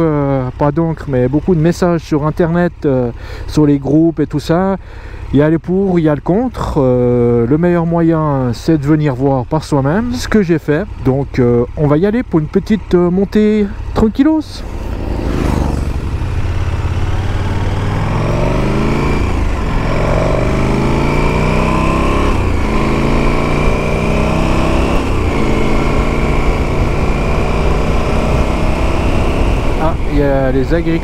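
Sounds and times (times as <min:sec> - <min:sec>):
motorcycle engine accelerating: 0:06.5 - 0:31.0.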